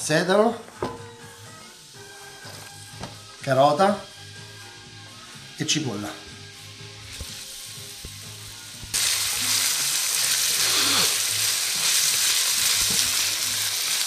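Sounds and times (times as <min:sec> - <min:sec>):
vegetables sizzling in oil: 0:01.0 - 0:14.0.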